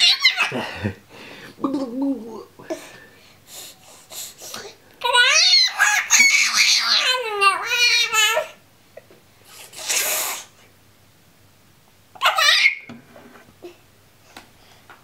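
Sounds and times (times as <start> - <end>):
baby squealing: 0.0 - 0.5, 5.0 - 8.6, 12.2 - 12.9.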